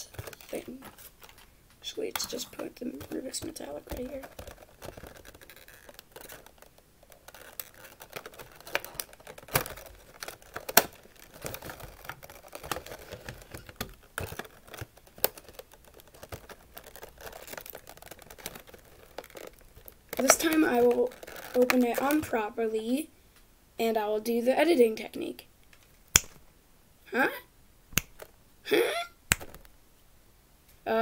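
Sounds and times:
plastic boxes clicking and tapping: 0:00.0 - 0:22.4, 0:29.3 - 0:29.7
light plastic crinkling: 0:00.0 - 0:23.4, 0:28.0 - 0:28.4, 0:29.3 - 0:29.8.

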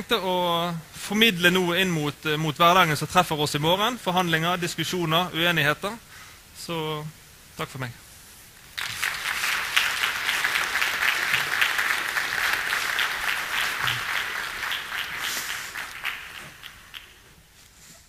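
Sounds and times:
audience applauding: 0:08.8 - 0:17.4.

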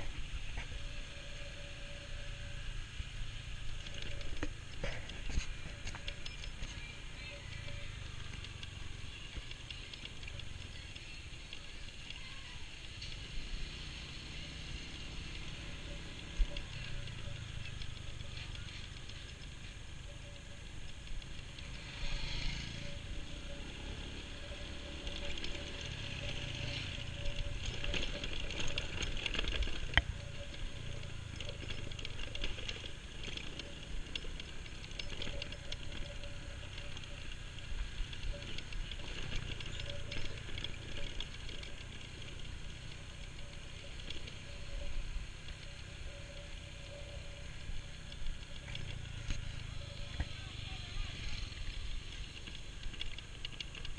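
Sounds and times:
motorcycle engine running: 0:00.0 - 0:53.9
motorcycle rattling over ruts: 0:00.0 - 0:53.9
road and wind noise: 0:00.0 - 0:53.9.

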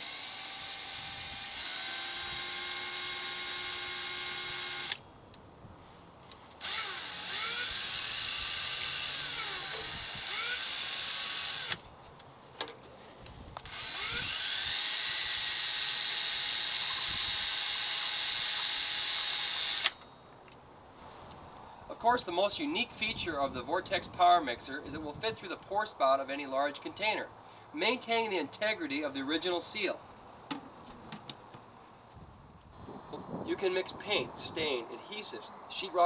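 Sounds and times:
hand drill motor whine: 0:00.0 - 0:05.0, 0:06.5 - 0:11.8, 0:13.6 - 0:20.0.

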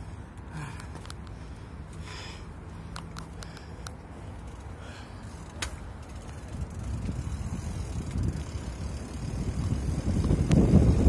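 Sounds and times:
bike tyres rumbling on pavement: 0:00.0 - 0:11.0
sharp bike clicks: 0:00.3 - 0:01.4, 0:02.8 - 0:11.0
wind on microphone: 0:06.5 - 0:11.0.

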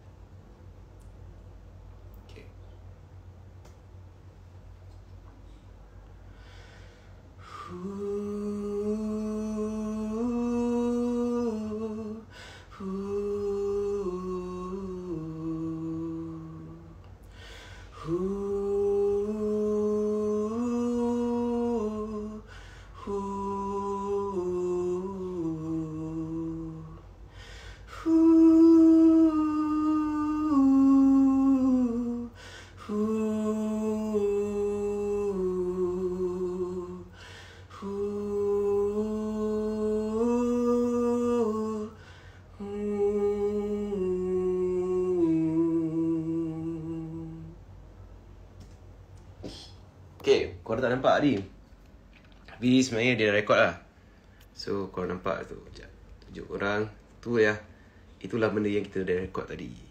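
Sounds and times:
breaths: 0:05.5 - 0:07.8, 0:12.3 - 0:12.8, 0:17.2 - 0:18.0, 0:22.4 - 0:23.0, 0:27.3 - 0:28.0, 0:32.3 - 0:32.9, 0:37.1 - 0:37.8, 0:42.0 - 0:42.6, 0:53.9 - 0:54.6, 0:57.6 - 0:58.2
man humming: 0:07.4 - 0:17.1, 0:17.9 - 0:47.6.

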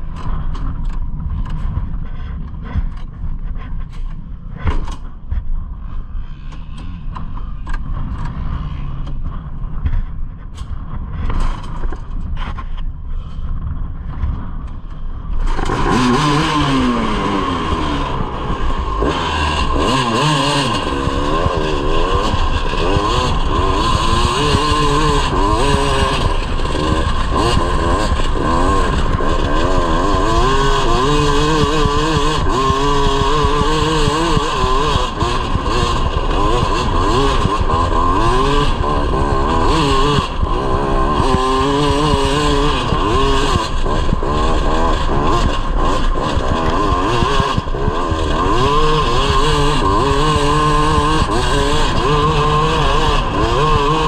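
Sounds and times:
two-stroke engine revving: 0:15.4 - 0:54.0.

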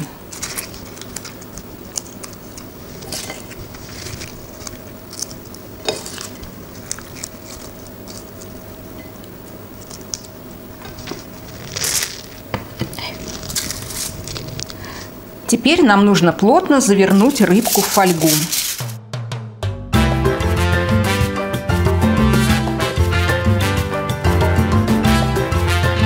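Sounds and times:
dry leaves crackling and rustling: 0:00.0 - 0:08.6, 0:11.0 - 0:12.4, 0:13.0 - 0:14.9, 0:17.2 - 0:19.0
foil crinkling: 0:00.0 - 0:09.0, 0:09.8 - 0:15.1, 0:16.8 - 0:19.0.

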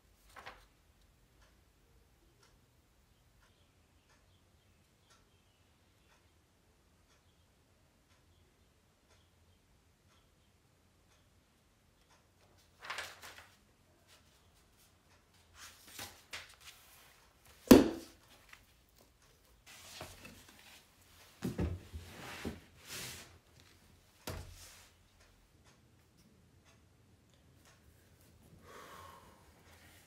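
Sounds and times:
pages flipping: 0:00.3 - 0:00.7, 0:12.6 - 0:13.6, 0:15.6 - 0:17.2.

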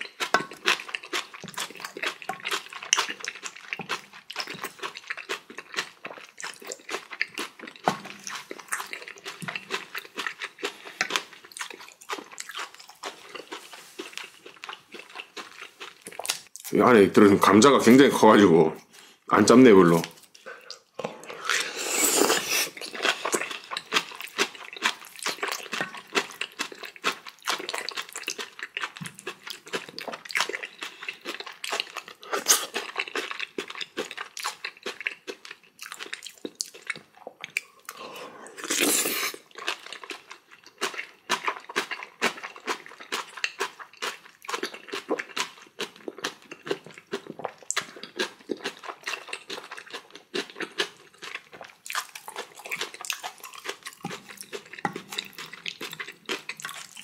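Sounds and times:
wet chewing and crunching: 0:00.0 - 0:16.8, 0:19.9 - 0:57.0
noodle slurps: 0:20.6 - 0:23.6, 0:37.9 - 0:39.4.

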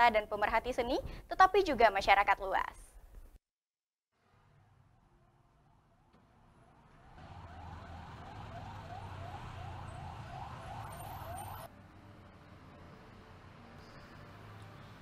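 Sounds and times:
siren rising sweeps: 0:05.3 - 0:11.7.

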